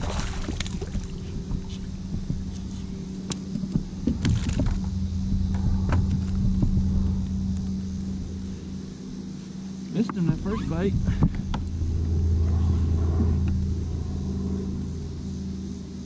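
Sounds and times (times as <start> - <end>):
fish splashing in water: 0.0 - 1.8
low steady hum: 0.0 - 16.0
fishing gear clicks and knocks: 0.4 - 6.8.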